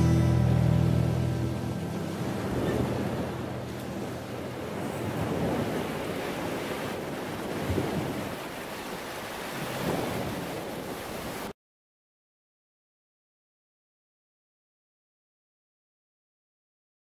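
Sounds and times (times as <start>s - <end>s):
ocean surf washing on beach: 0.0s - 11.6s.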